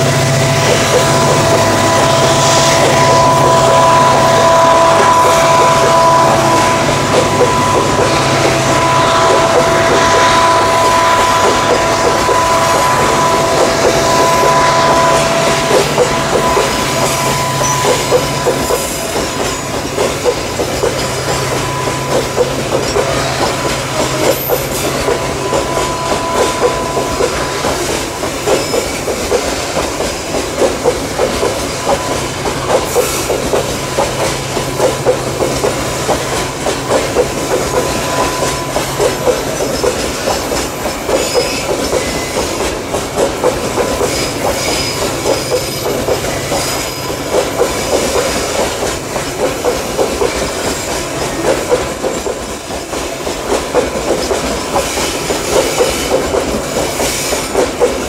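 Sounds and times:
two-note whine: 0.0 - 19.7
train wheels clicking over rail joints: 0.0 - 58.0.

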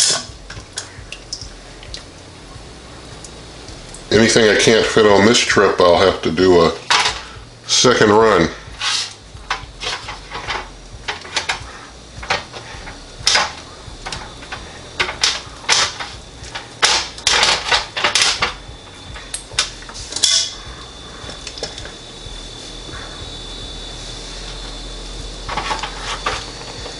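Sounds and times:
metal tongs clinking on metal: 20.1 - 20.6.

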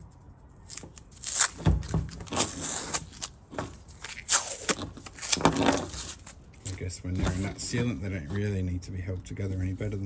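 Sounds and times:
tape tearing off: 0.6 - 7.5.

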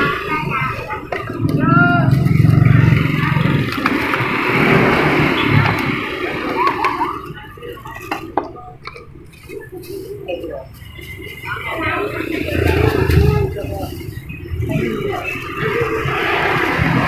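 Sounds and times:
vehicle engine running: 0.0 - 6.6.

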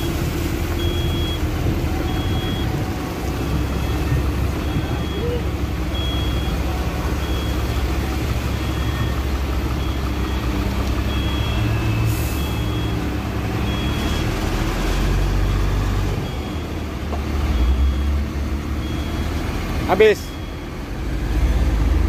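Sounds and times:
reversing alarm beeping: 0.0 - 16.8, 17.4 - 20.8
diesel engine running: 0.0 - 22.0.

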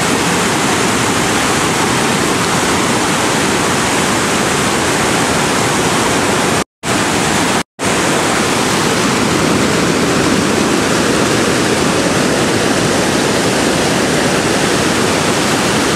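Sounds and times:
whitewater rapids rushing: 0.0 - 15.9.

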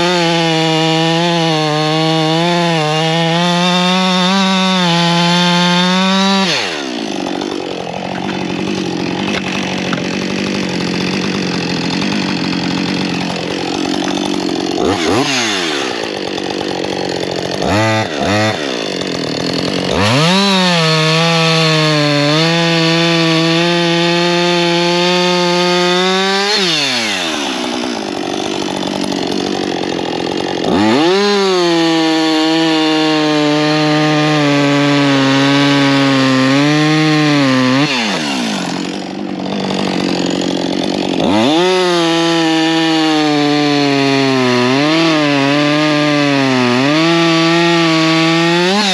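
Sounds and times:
chainsaw cutting wood: 0.0 - 48.9.

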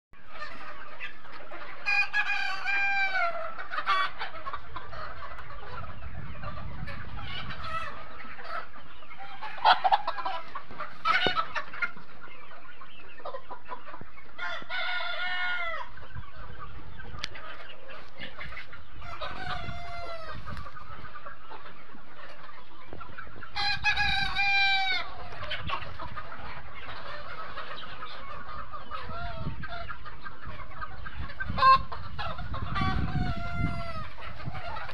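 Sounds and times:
chickens clucking: 0.2 - 34.9
roosters crowing: 14.4 - 16.0, 19.0 - 20.6, 23.5 - 25.4.

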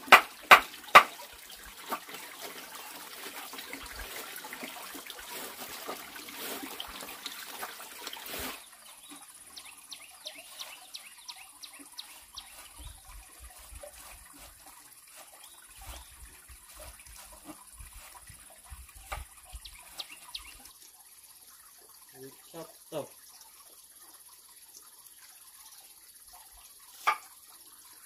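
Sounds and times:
running water: 0.0 - 28.0.

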